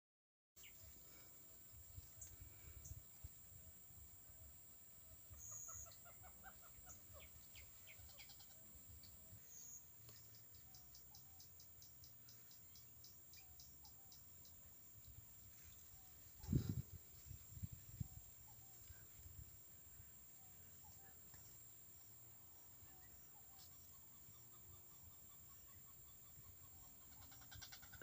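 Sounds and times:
faint bird calls: 0:05.1 - 0:14.6, 0:22.8 - 0:28.0
high ticking bird notes: 0:05.3 - 0:15.2.

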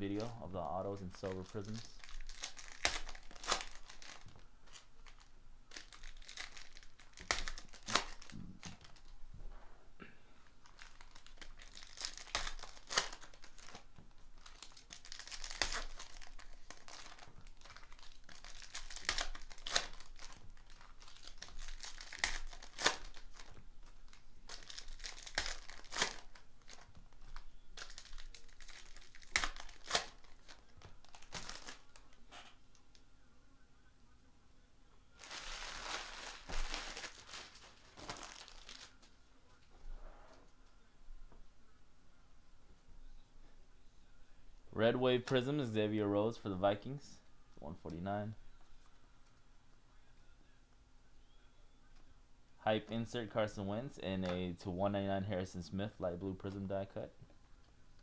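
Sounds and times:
foil wrappers tearing and crinkling: 0:01.1 - 0:09.1, 0:10.6 - 0:32.1, 0:35.2 - 0:39.0.

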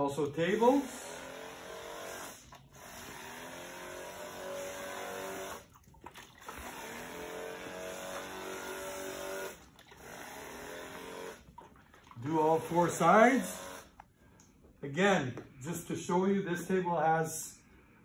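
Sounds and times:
sprayer motor whining: 0:00.0 - 0:05.7, 0:06.4 - 0:11.5, 0:12.2 - 0:14.0.

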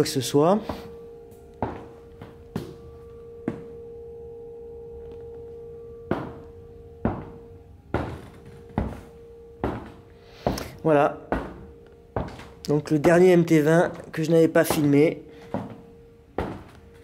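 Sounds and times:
steady humming tone: 0:00.0 - 0:17.0
footsteps on tiled floor: 0:00.6 - 0:01.0, 0:01.6 - 0:03.8, 0:06.1 - 0:17.0.

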